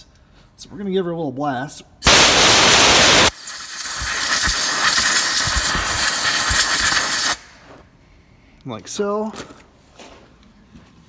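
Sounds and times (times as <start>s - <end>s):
air blow gun hissing: 2.0s - 7.6s.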